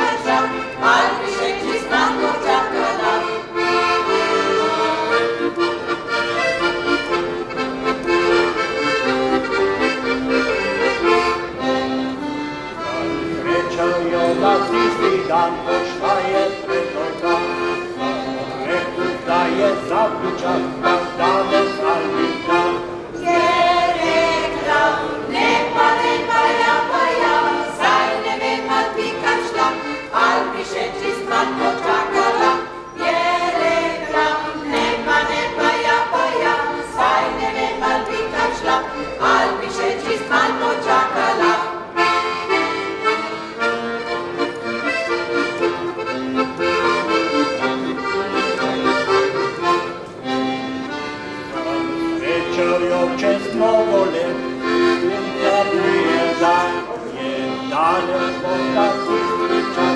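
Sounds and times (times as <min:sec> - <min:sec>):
women's choir singing: 0:00.0 - 0:06.5, 0:12.8 - 0:42.7, 0:51.9 - 0:59.9
piano accordion folk tune: 0:00.0 - 0:59.9.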